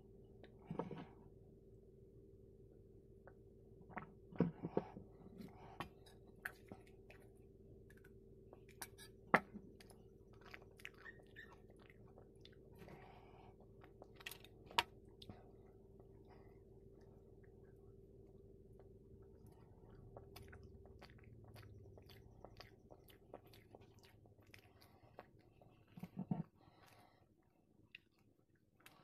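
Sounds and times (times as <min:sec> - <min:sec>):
faint steady hum: 0:00.0 - 0:29.0
chewing: 0:04.7 - 0:15.4, 0:16.0 - 0:27.2, 0:27.8 - 0:29.0.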